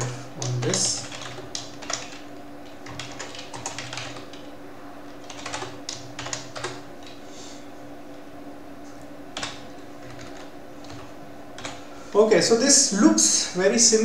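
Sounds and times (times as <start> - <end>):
typing on computer keyboard: 0.0 - 4.5, 5.1 - 6.9, 9.4 - 11.8
faint steady hum: 0.0 - 14.0.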